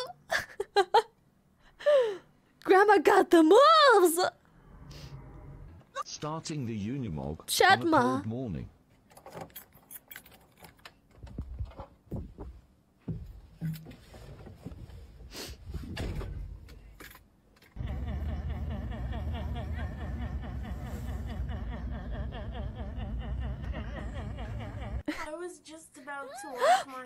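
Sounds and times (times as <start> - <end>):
deep engine rumble with warbling tone: 4.4 - 5.9.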